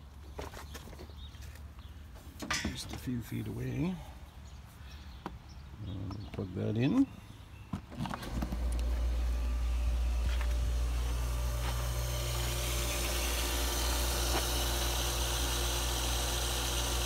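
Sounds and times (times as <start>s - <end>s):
pump humming: 8.0s - 17.0s.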